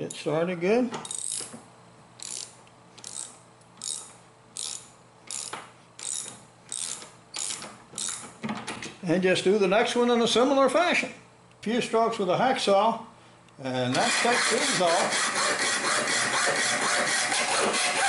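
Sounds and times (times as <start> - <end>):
ratchet wrench clicking: 1.0 - 1.5, 2.2 - 8.4.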